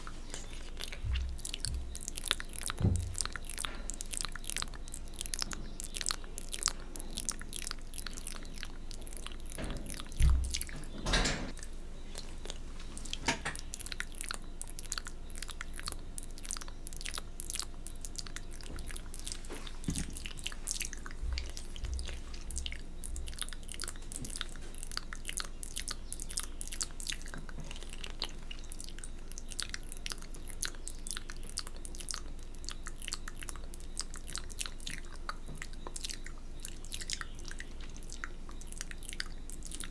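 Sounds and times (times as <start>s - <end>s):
wet mouth sounds and licking: 0.0s - 10.9s, 11.5s - 39.9s
dull low thumps: 9.8s - 10.7s.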